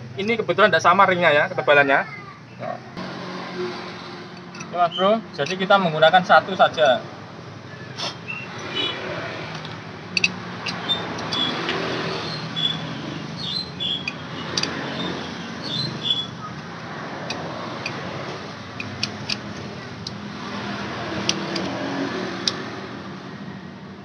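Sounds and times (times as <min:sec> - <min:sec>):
light metallic clicks and clinks: 0:04.4 - 0:04.8, 0:09.6 - 0:11.8.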